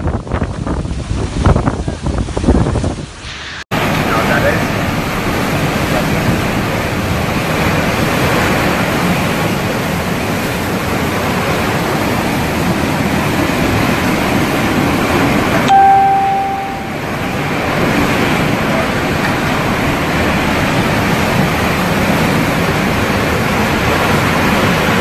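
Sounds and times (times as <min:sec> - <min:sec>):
driving rain: 0:00.0 - 0:25.0
hurricane wind: 0:00.0 - 0:25.0
brief steady tone: 0:15.6 - 0:17.0.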